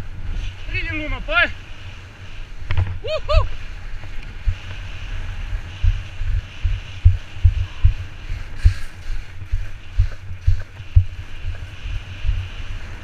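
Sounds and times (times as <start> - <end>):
wind buffeting microphone: 0.0 - 13.0
low thumps from bumps: 4.4 - 12.6.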